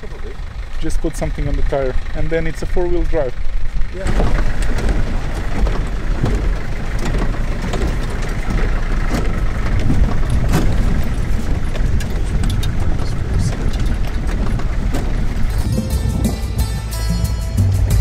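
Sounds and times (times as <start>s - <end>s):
van engine running under load: 0.0s - 18.0s
water splashing against vehicle: 3.3s - 15.8s
knocks and rattles: 3.5s - 16.9s.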